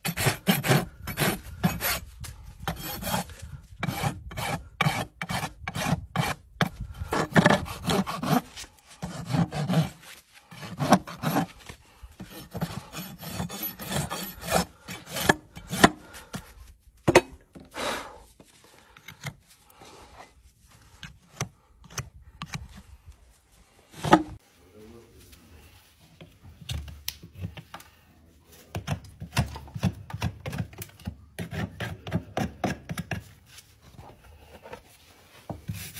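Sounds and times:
rasp filing a hoof: 0.0s - 16.6s, 28.7s - 34.9s.

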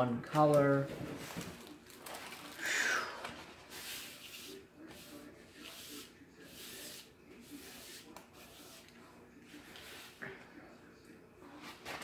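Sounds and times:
plastic bag rustling: 0.6s - 4.2s.

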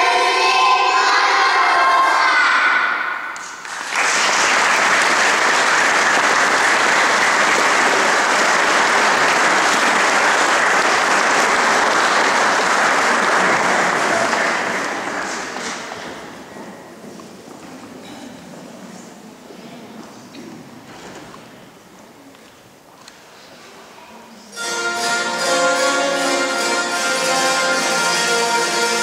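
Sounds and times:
audience applauding: 3.4s - 16.0s.

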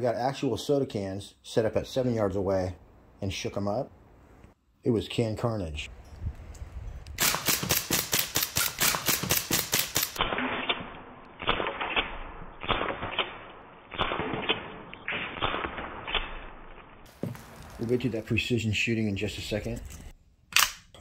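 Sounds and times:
bb pistol rapid shots: 7.2s - 16.6s
muffled pops of cans bursting: 17.1s - 18.1s.

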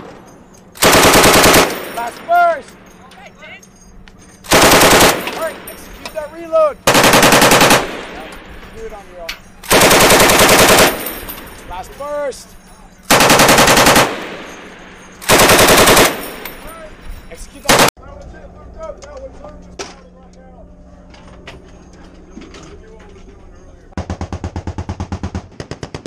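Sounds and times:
machine gun automatic bursts: 0.8s - 2.2s, 4.5s - 5.8s, 6.8s - 8.3s, 9.6s - 11.2s, 13.1s - 16.6s, 17.6s - 17.9s.

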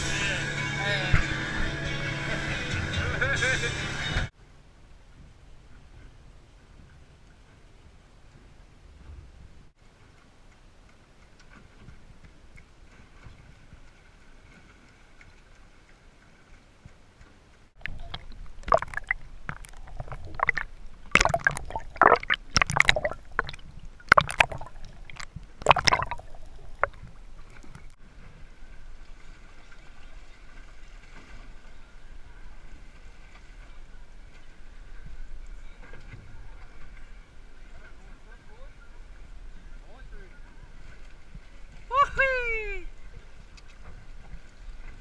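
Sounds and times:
faint water wash: 0.0s - 45.0s
water sloshing and gurgling: 5.2s - 42.0s, 42.9s - 45.0s
loud irregular splashes: 17.8s - 28.0s.

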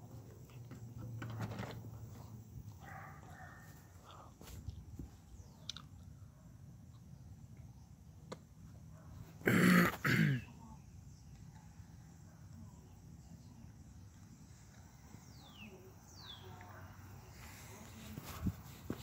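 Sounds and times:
low steady background noise: 0.0s - 19.0s
person clearing throat: 9.4s - 10.5s.

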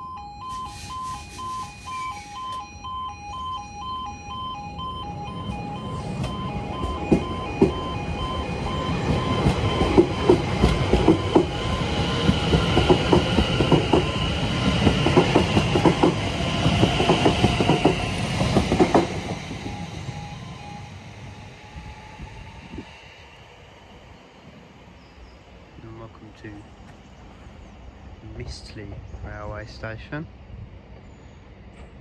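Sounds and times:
repeating beep tone: 0.0s - 12.3s, 19.6s - 22.5s
electric train running: 0.2s - 25.2s
wheels clacking over rail joints: 9.1s - 19.6s.

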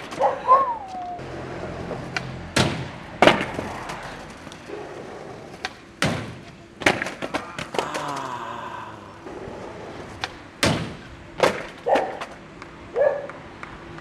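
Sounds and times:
skateboard slamming on concrete: 1.6s - 8.0s, 9.3s - 12.4s
skateboard clattering knocks: 2.1s - 8.0s, 10.2s - 12.7s.

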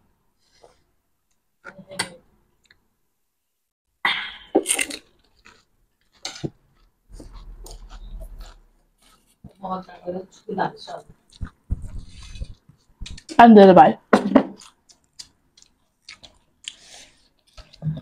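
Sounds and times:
crunching and chewing: 4.6s - 13.3s, 14.6s - 18.0s.

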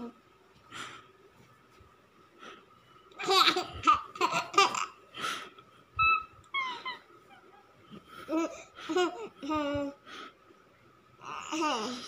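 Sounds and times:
baby laughing: 3.2s - 5.0s, 6.0s - 10.0s
baby high-pitched calls: 6.0s - 7.5s.

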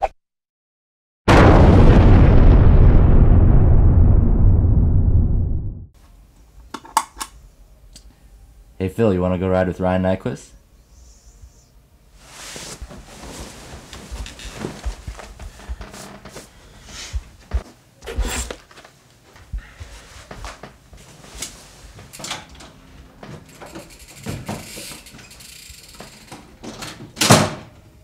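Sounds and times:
bedding rustling: 12.2s - 22.4s
thumps and footsteps: 12.8s - 21.2s
door being shut: 26.6s - 27.8s.

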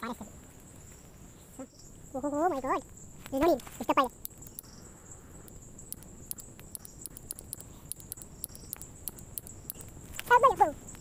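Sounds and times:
high-pitched insect drone: 1.6s - 11.0s
campfire crackling and popping: 2.8s - 11.0s.

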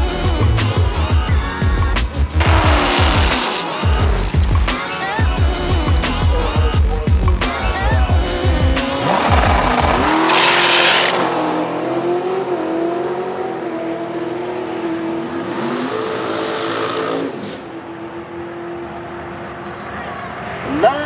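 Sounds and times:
drag car engine accelerating: 2.0s - 19.8s.

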